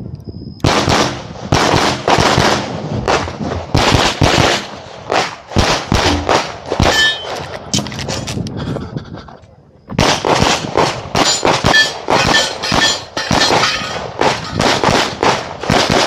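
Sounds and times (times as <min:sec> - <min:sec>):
pistol shots with echo: 0:00.6 - 0:07.4, 0:10.0 - 0:16.0.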